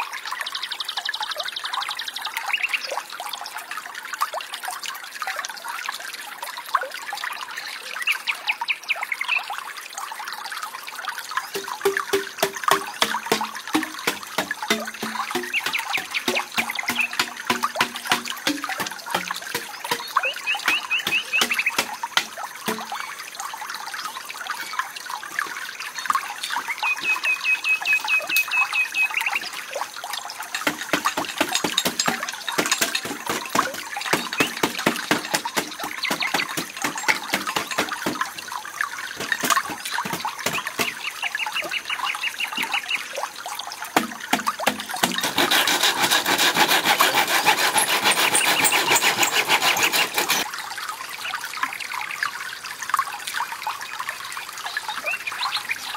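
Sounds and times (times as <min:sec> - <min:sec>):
hand saw cutting bamboo: 0:11.6 - 0:22.9, 0:30.5 - 0:38.3, 0:39.2 - 0:41.0, 0:44.0 - 0:50.5
hand tools knocking bamboo: 0:11.6 - 0:23.0, 0:30.5 - 0:38.4, 0:39.1 - 0:41.1, 0:44.0 - 0:50.5.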